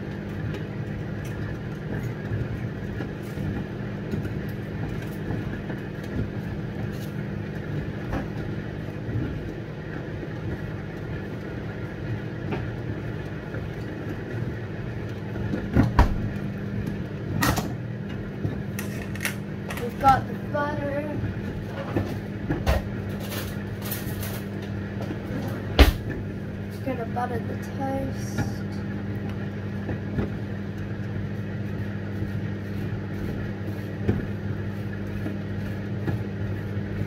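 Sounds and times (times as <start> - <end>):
kitchen appliance humming: 0.0 - 37.0.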